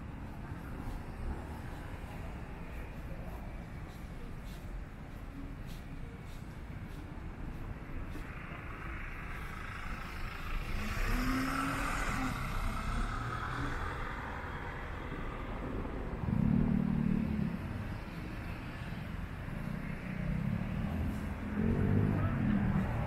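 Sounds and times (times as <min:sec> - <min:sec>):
traffic hum: 0:00.0 - 0:23.0
car passing: 0:06.9 - 0:23.0.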